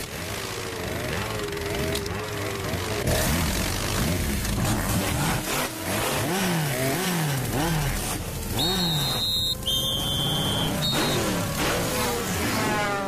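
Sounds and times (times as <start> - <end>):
high whistle-like tones: 8.5 - 11.5.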